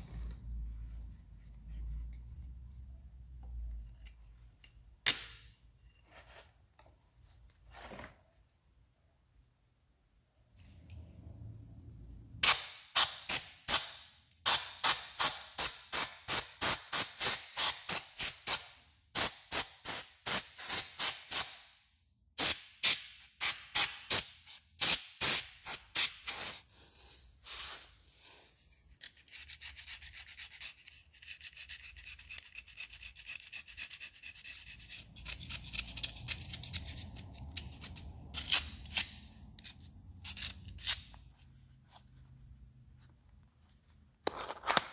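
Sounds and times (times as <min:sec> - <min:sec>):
rasping rub of metal parts: 0:26.0 - 0:42.2
metal tool scraping metal: 0:29.0 - 0:41.2.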